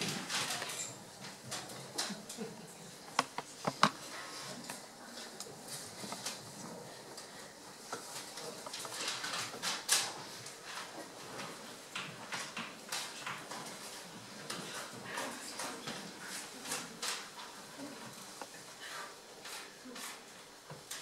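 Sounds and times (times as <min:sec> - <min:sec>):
paper rustling: 0:07.9 - 0:10.9.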